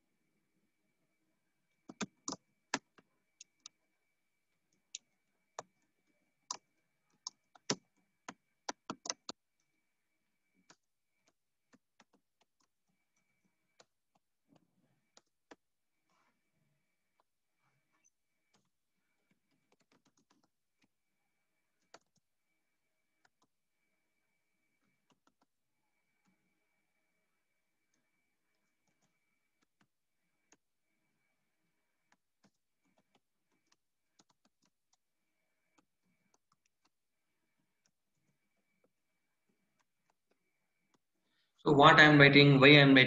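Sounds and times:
computer keyboard typing: 1.8s - 3.8s, 6.4s - 9.4s, 19.3s - 20.9s, 21.8s - 22.3s, 24.8s - 25.5s, 32.0s - 37.0s.

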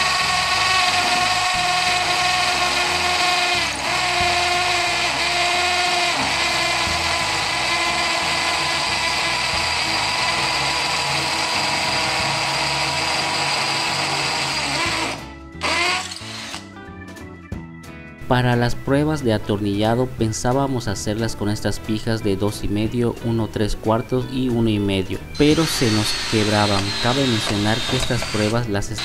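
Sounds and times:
hammer drill drilling into concrete: 0.0s - 16.6s, 25.4s - 29.0s.

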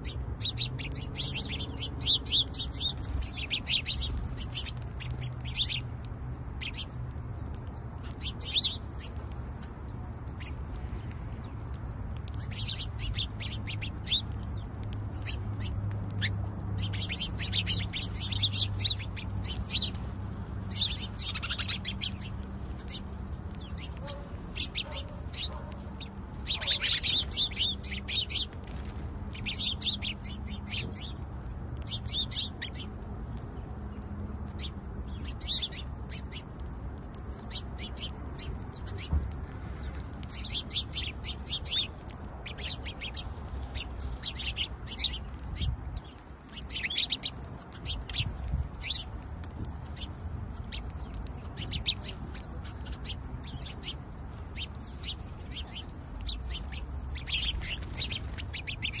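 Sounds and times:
sparrows chirping: 0.0s - 59.0s.

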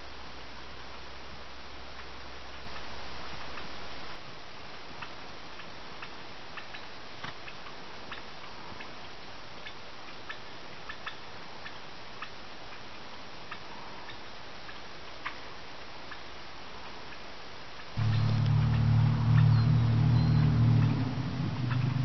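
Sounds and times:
steady hiss: 0.0s - 22.0s
wild turkey alarm putts: 18.0s - 22.0s.

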